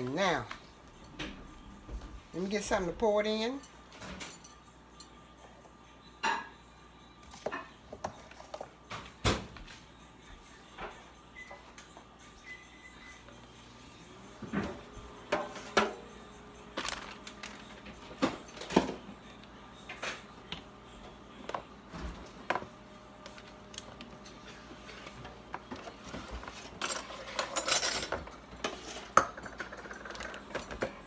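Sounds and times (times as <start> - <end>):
aluminium foil pan crinkling: 16.8 - 18.0.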